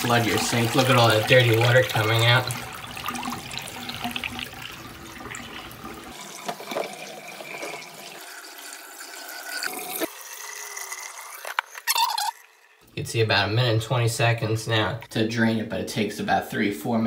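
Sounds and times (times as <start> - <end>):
water gushing into sink: 0.0 - 12.8.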